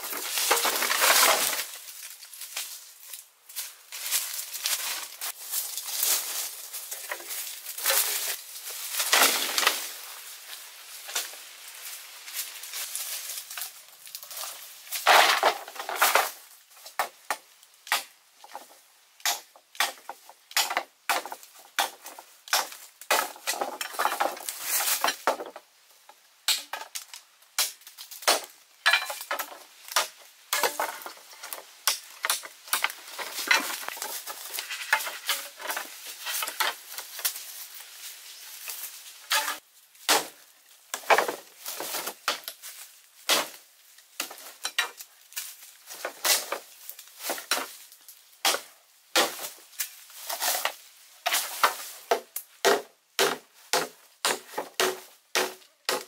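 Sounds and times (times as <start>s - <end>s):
bamboo poles knocking together: 0.0s - 2.1s, 9.0s - 9.9s, 15.0s - 25.7s, 26.5s - 37.4s, 39.3s - 42.6s, 48.4s - 56.0s
machete chopping bamboo: 16.9s - 18.1s, 19.2s - 24.2s, 26.5s - 26.9s, 27.6s - 31.0s, 31.8s - 33.0s, 39.3s - 41.4s, 43.2s - 43.6s, 48.4s - 49.6s, 50.4s - 56.0s.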